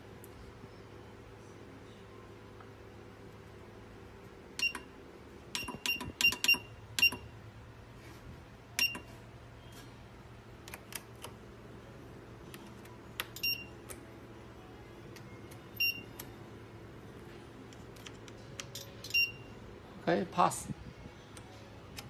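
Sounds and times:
low machine hum: 0:00.0 - 0:22.0
machine clicking beeps: 0:04.6 - 0:07.3, 0:08.8 - 0:09.1, 0:13.1 - 0:14.0, 0:15.5 - 0:16.4, 0:18.6 - 0:19.5.

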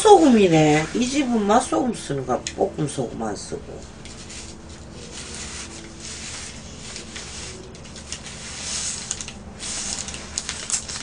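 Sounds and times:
paper wrapping crinkling: 0:03.9 - 0:11.0.

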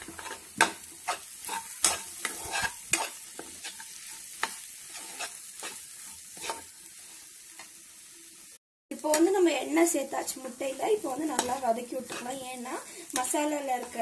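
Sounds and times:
metal spoon scraping a pan: 0:00.0 - 0:07.7, 0:10.7 - 0:14.0
food sizzling in oil: 0:00.0 - 0:14.0.

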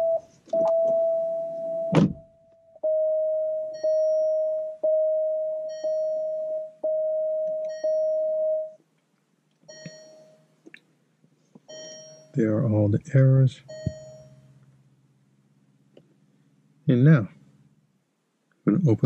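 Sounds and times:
dashboard warning beep: 0:00.0 - 0:08.8, 0:09.7 - 0:10.5, 0:11.7 - 0:14.6
thump: 0:01.9 - 0:02.3.

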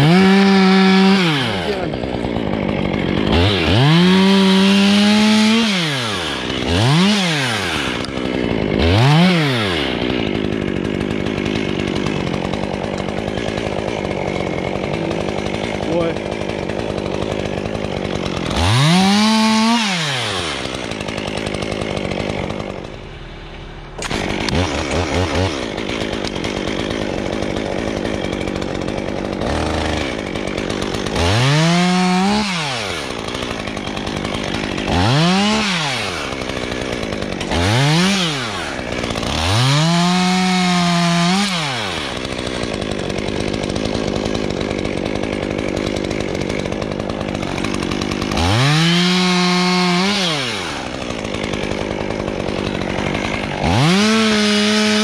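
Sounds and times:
chainsaw revving and idling: 0:00.0 - 0:55.0.

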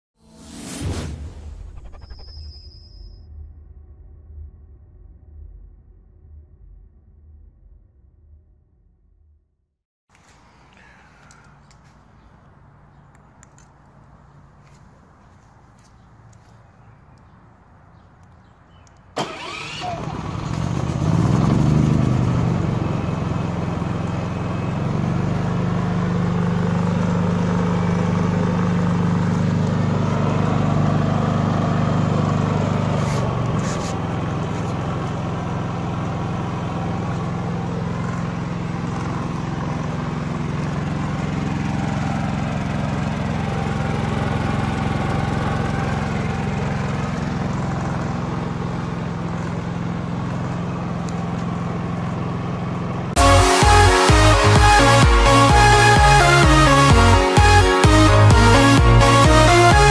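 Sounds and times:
inverter generator running: 0:10.1 - 0:59.9.

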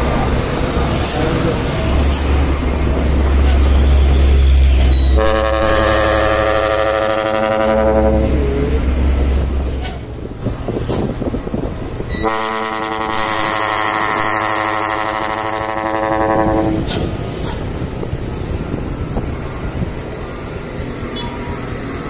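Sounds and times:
road noise: 0:00.0 - 0:22.0
truck engine: 0:00.0 - 0:22.0
truck air horn blowing: 0:03.7 - 0:08.8, 0:12.1 - 0:17.0.

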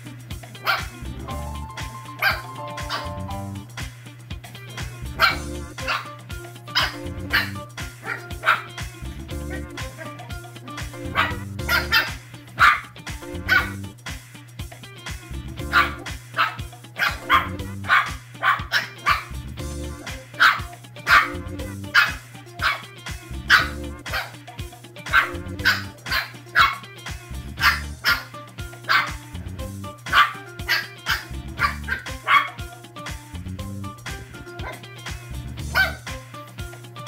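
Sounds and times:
background music with bass line: 0:00.0 - 0:37.0
puppies yapping: 0:00.6 - 0:01.0, 0:01.8 - 0:03.5, 0:05.2 - 0:13.9, 0:15.6 - 0:19.3, 0:19.9 - 0:24.4, 0:25.0 - 0:26.9, 0:27.6 - 0:29.3, 0:30.0 - 0:32.7, 0:34.6 - 0:34.9, 0:35.7 - 0:36.2.

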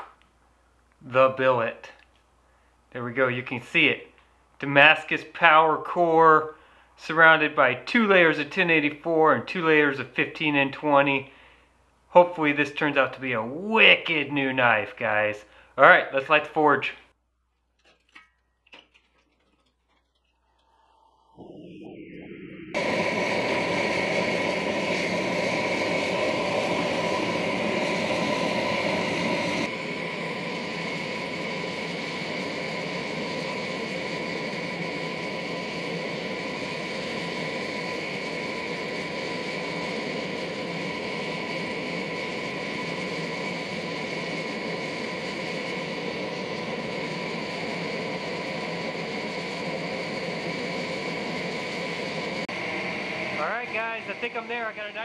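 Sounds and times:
gas burner rushing: 0:17.8 - 0:55.0.

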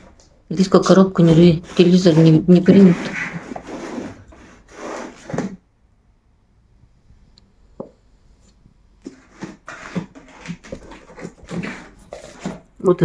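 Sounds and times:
scratching on cardboard box: 0:01.2 - 0:05.6, 0:09.0 - 0:12.7.

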